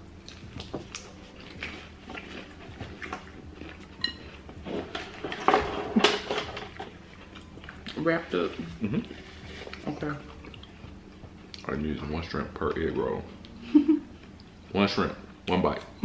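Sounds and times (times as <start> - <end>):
crunchy chewing: 0.2 - 11.8.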